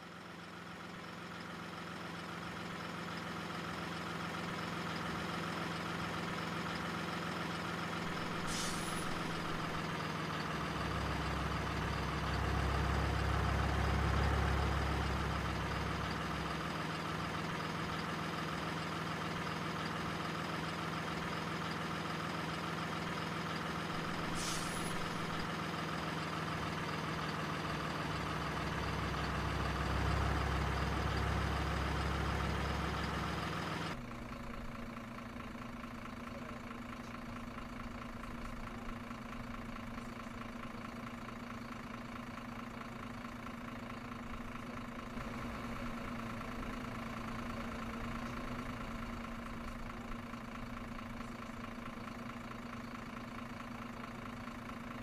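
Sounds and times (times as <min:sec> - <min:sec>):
diesel truck engine running: 0:00.0 - 0:55.0
air brake hisses: 0:08.1 - 0:09.8, 0:24.0 - 0:25.5.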